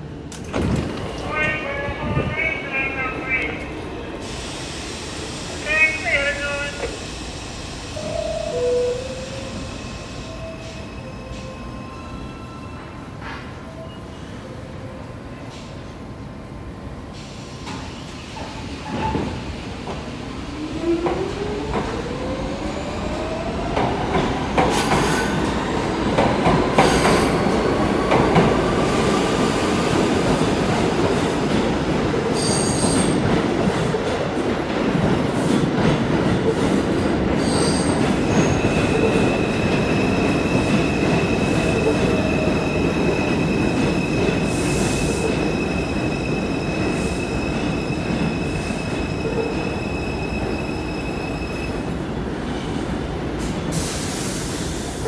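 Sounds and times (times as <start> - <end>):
train wheels rumbling on rail: 17.1 - 55.0.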